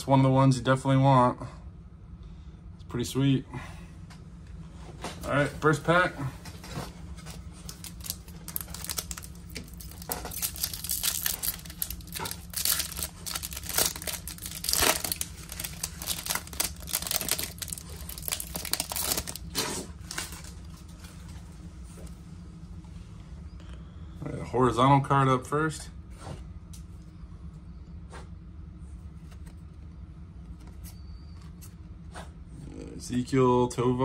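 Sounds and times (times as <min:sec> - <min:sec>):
wrapper crinkling: 0:07.2 - 0:21.0
card pack wrapper tearing: 0:07.6 - 0:20.6.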